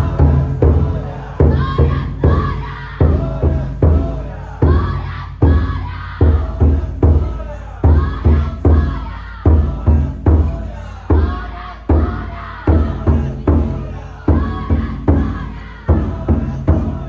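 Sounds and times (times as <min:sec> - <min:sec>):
group shouting a chant: 0:00.0 - 0:17.0
large drum beating: 0:00.0 - 0:17.0.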